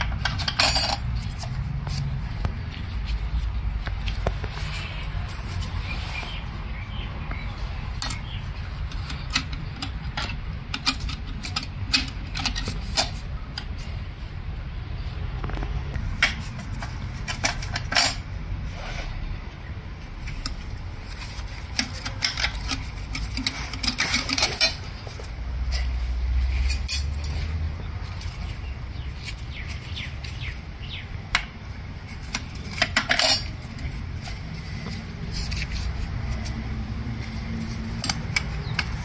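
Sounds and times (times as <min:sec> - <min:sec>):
metal plates clinking: 0:00.0 - 0:01.6, 0:16.2 - 0:18.3, 0:21.3 - 0:25.1, 0:32.2 - 0:34.4.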